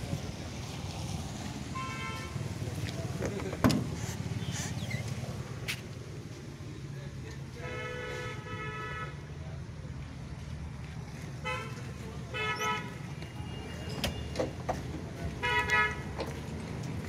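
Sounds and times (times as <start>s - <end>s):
van engine rumbling: 2.4s - 7.2s.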